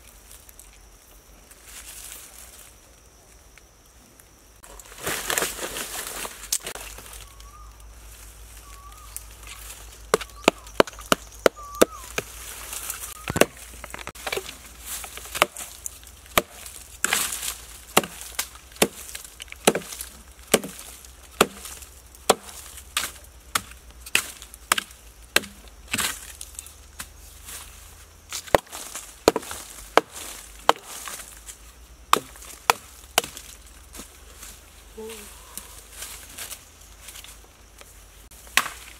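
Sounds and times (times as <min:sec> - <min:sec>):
hand tool chopping a rotting log: 0:10.1 - 0:12.3, 0:13.3 - 0:27.2, 0:28.3 - 0:31.4, 0:32.1 - 0:33.6, 0:38.4 - 0:38.9.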